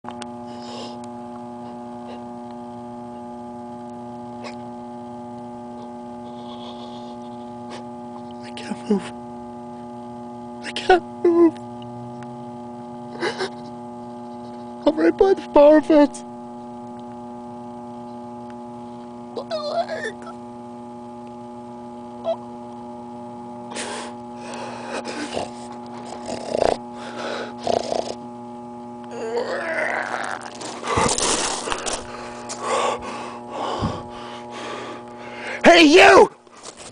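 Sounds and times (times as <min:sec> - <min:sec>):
electrical hum: 0:00.0 - 0:36.9
person groaning: 0:19.4 - 0:20.4, 0:29.1 - 0:31.8, 0:32.5 - 0:34.1
person gasping heavily: 0:32.0 - 0:35.6.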